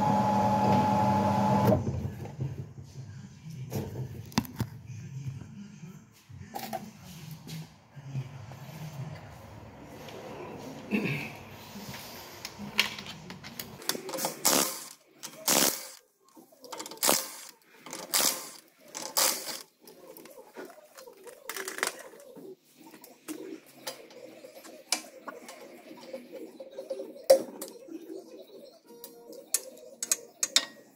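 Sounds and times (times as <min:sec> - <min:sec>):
impact wrench spinning: 0:14.1 - 0:16.0, 0:16.8 - 0:19.6
clatter of metal parts: 0:16.7 - 0:19.6.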